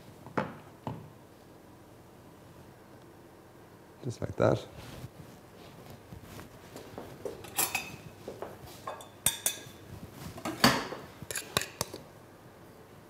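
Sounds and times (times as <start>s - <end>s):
crockery and utensils clinking: 7.4s - 8.1s, 8.9s - 9.8s.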